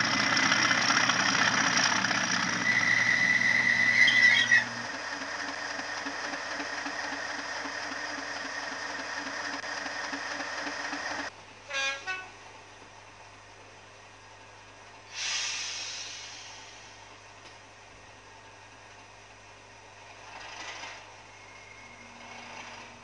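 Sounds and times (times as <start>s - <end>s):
diesel engine rumble: 0.0s - 23.0s
horn toots: 11.7s - 12.4s
brief hiss: 15.1s - 17.1s.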